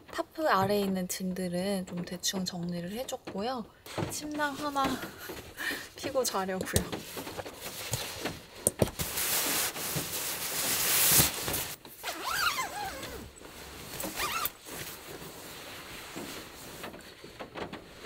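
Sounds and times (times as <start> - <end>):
nylon rustling: 3.9 - 18.0
zipper being drawn: 12.0 - 13.3, 14.0 - 14.6.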